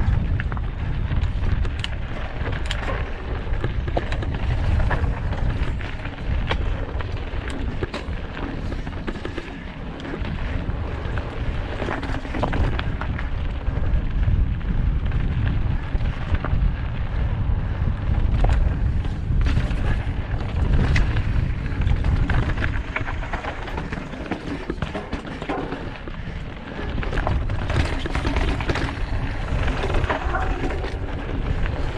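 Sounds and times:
bike rattling: 0:00.0 - 0:31.9
wind buffeting microphone: 0:00.0 - 0:31.9
tyres crunching over rocks: 0:18.3 - 0:31.9.

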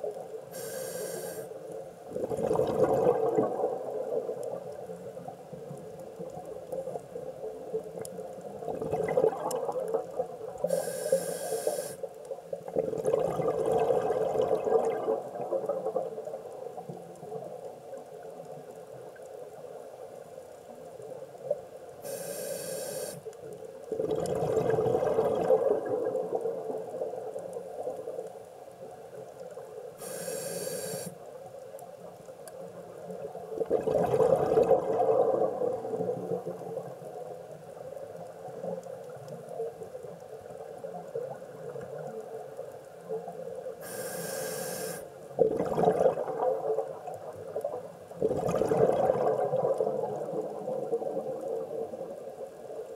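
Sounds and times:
high-pitched inhalation hisses: 0:00.5 - 0:01.5, 0:10.7 - 0:12.0, 0:22.0 - 0:23.2, 0:30.0 - 0:31.1, 0:43.8 - 0:45.0
bubbling exhaled air underwater: 0:02.1 - 0:04.7, 0:08.6 - 0:11.9, 0:12.7 - 0:16.3, 0:23.9 - 0:27.8, 0:33.2 - 0:37.1, 0:43.8 - 0:52.1.

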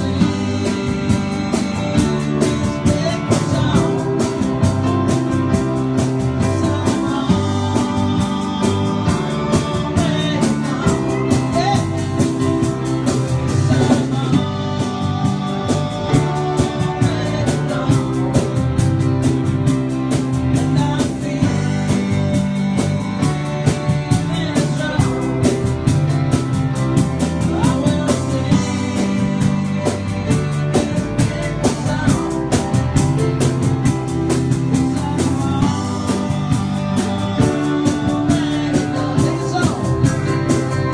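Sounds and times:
digital piano: 0:00.0 - 0:40.9
drum kit: 0:00.0 - 0:40.9
electric guitars: 0:00.0 - 0:40.9
man singing: 0:00.0 - 0:40.9
pedal steel guitar: 0:00.0 - 0:40.9.

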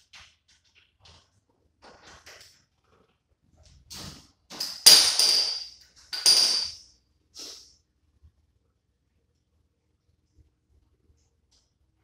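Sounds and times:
metal-on-metal clanks: 0:04.0 - 0:06.8.

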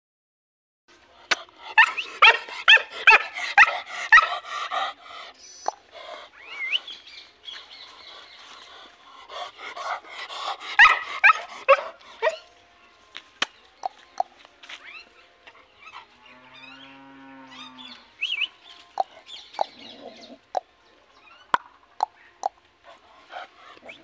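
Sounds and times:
dog barking: 0:01.8 - 0:04.3, 0:10.8 - 0:12.4.

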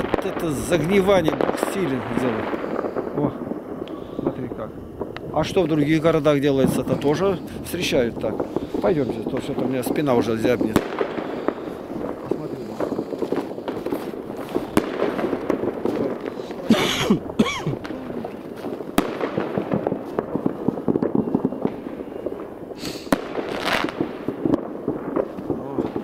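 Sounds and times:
fireworks crackling and banging: 0:00.0 - 0:26.0.

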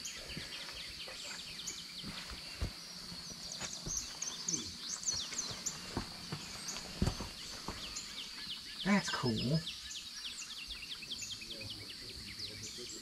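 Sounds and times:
birds chirping: 0:00.0 - 0:13.0
high insect drone: 0:00.0 - 0:13.0
soft thumps: 0:05.1 - 0:07.9.

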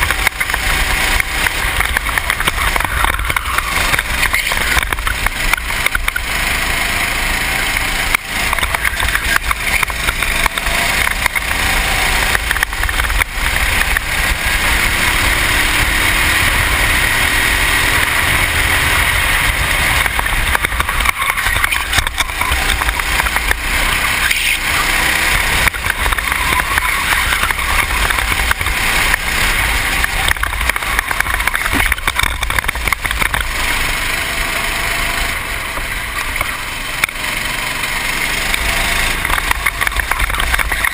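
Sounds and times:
racing kart engine running hard: 0:00.0 - 0:40.9.

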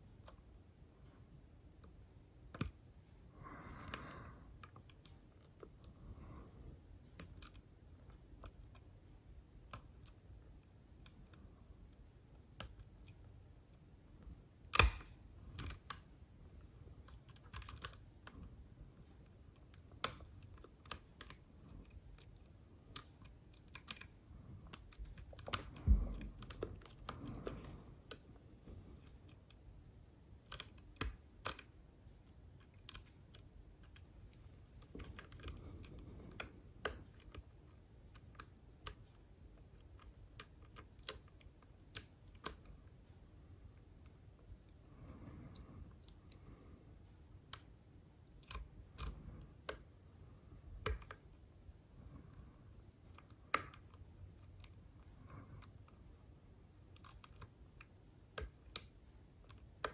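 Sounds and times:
lock picking metallic clicks: 0:14.7 - 0:16.1, 0:30.4 - 0:34.1, 0:53.1 - 0:55.8.

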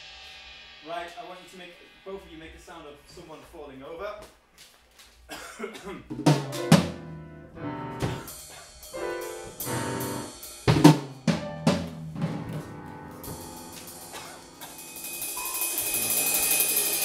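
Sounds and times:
drum and cymbal hits: 0:00.0 - 0:03.3, 0:06.1 - 0:07.2, 0:08.0 - 0:17.0.

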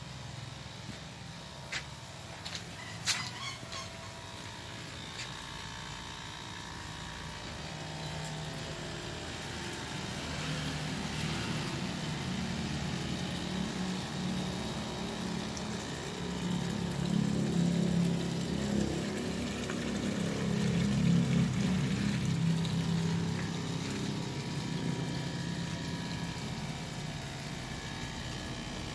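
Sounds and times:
pond pump water churning: 0:00.0 - 0:28.9.

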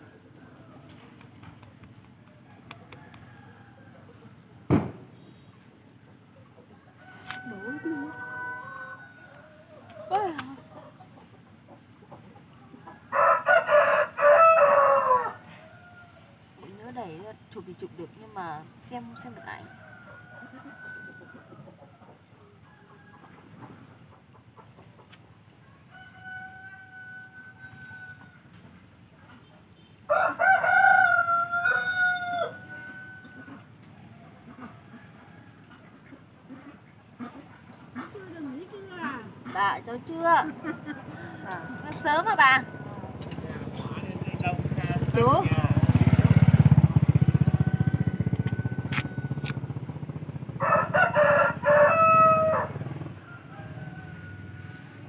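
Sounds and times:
roosters crowing: 0:02.3 - 0:04.6, 0:06.8 - 0:11.2, 0:12.7 - 0:17.2, 0:18.4 - 0:24.3, 0:25.6 - 0:28.8, 0:30.1 - 0:55.0
small engine puttering: 0:37.7 - 0:50.5.

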